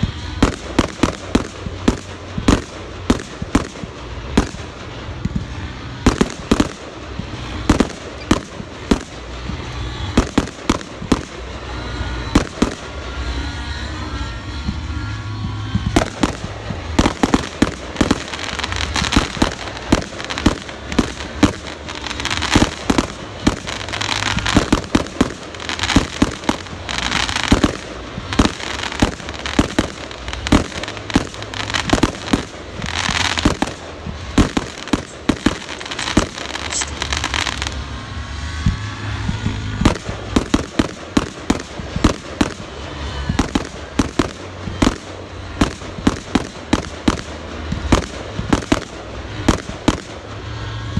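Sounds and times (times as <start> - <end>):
fireworks bangs and pops: 0.0 - 50.9
fireworks hissing: 0.0 - 50.9.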